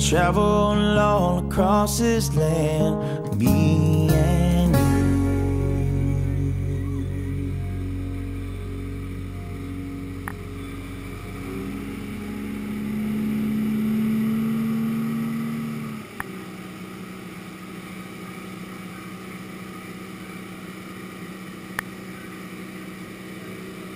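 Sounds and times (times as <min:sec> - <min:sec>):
outboard motor and water rush: 0:07.4 - 0:23.9
sharp clicks: 0:10.2 - 0:10.4.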